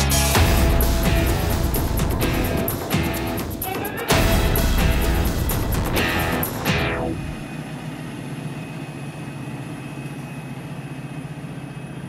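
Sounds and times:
music: 0.0s - 7.4s
truck engine idling: 0.0s - 12.0s.

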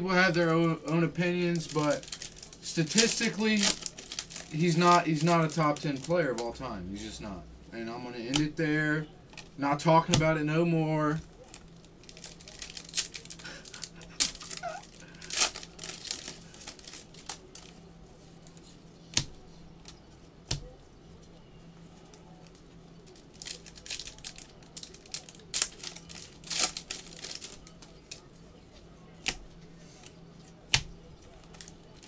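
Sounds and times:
foil packs tearing and crinkling: 0.1s - 6.6s, 11.4s - 17.7s, 23.1s - 28.2s, 31.3s - 32.0s.

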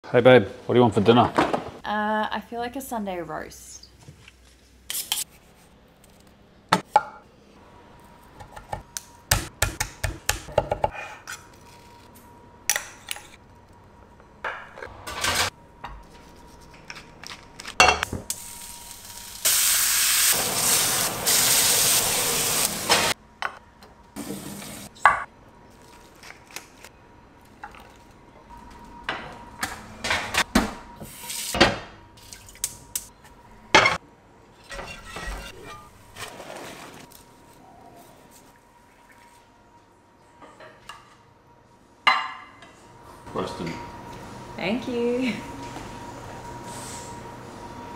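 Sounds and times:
frying pan sizzling: 18.1s - 23.2s.

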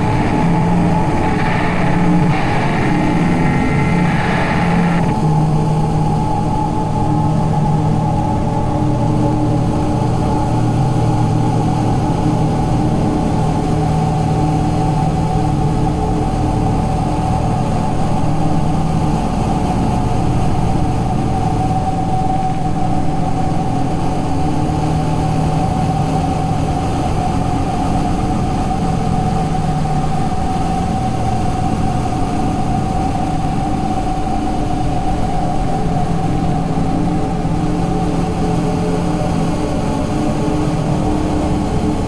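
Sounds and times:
low rumbling electronic drone: 0.0s - 23.4s, 29.2s - 42.0s.

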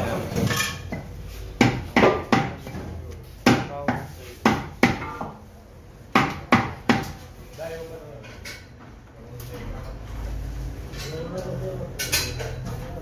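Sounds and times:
knife chopping on wooden block: 1.6s - 2.7s, 3.4s - 5.4s.

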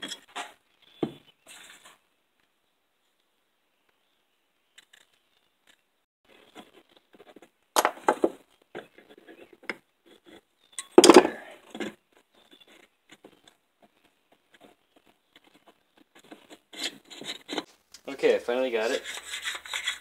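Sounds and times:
clicks and scrapes of parts: 4.7s - 5.8s, 6.4s - 17.8s, 18.9s - 20.0s.

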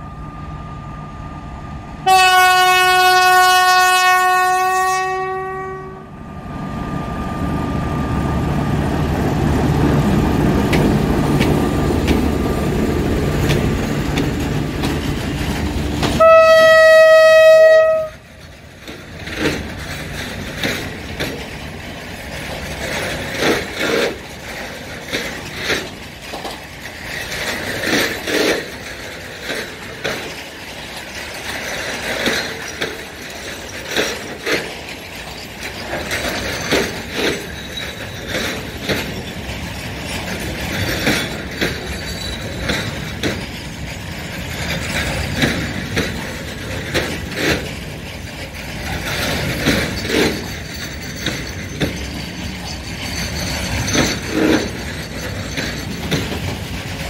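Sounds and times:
steel wheels rumbling on rail: 0.0s - 57.0s
wheelsets and couplings clacking: 9.2s - 16.8s, 17.6s - 57.0s.

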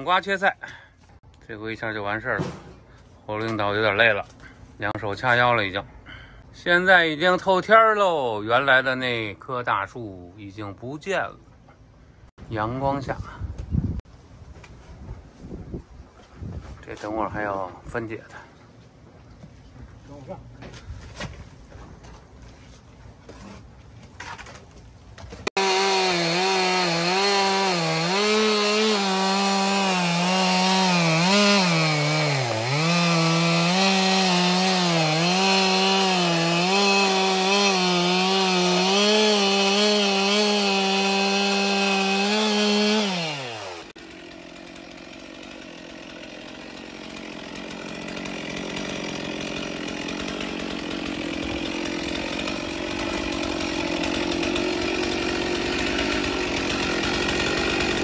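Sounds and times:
chainsaw cutting tree trunk: 25.4s - 58.0s.

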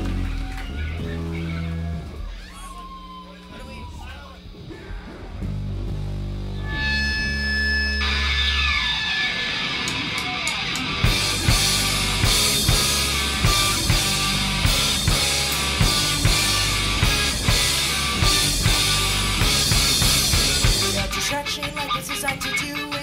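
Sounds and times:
electric guitar: 0.0s - 3.2s, 4.5s - 23.0s
drum kit fast beat: 11.0s - 21.6s.

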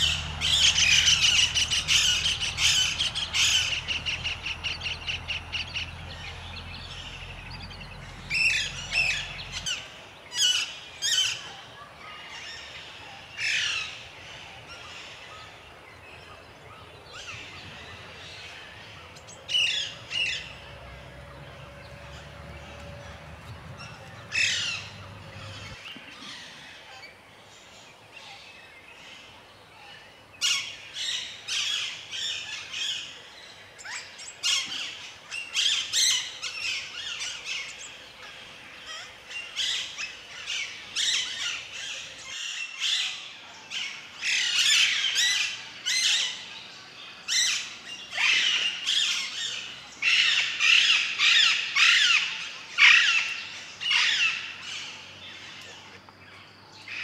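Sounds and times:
parakeets squawking: 0.0s - 9.8s, 21.7s - 25.8s.

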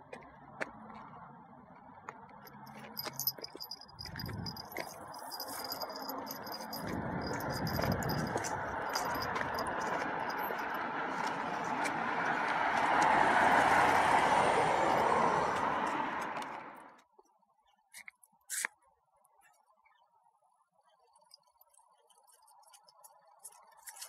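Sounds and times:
road vehicle passing: 0.3s - 17.0s
jingling harness clicks: 2.4s - 13.1s.

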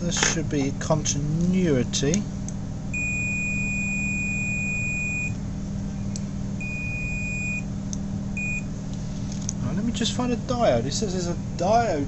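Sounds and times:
multimeter continuity beep: 2.9s - 5.4s, 6.6s - 7.7s, 8.4s - 8.7s.

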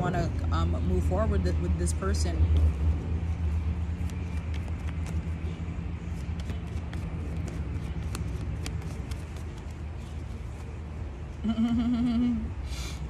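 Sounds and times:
cards being shuffled: 3.3s - 10.8s.

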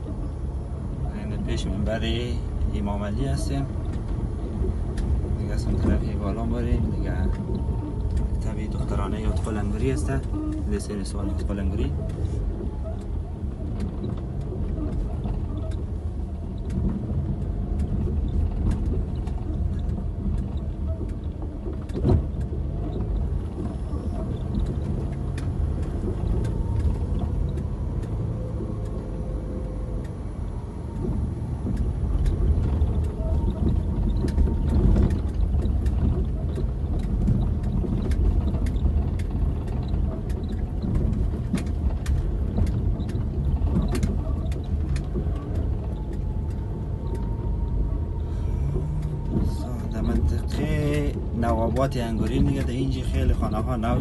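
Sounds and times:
car engine and tyres rumbling: 0.0s - 54.0s
knocks and rattles: 30.8s - 54.0s.

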